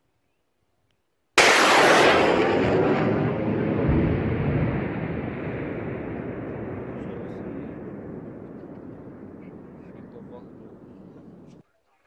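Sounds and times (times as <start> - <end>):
rocket launcher firing: 1.4 - 11.6.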